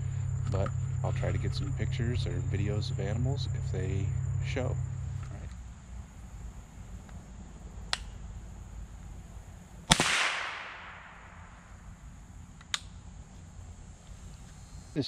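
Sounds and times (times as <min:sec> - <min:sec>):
faint sharp clicks: 0:07.9 - 0:08.2, 0:12.6 - 0:13.0
rifle shot with echo: 0:09.8 - 0:11.8.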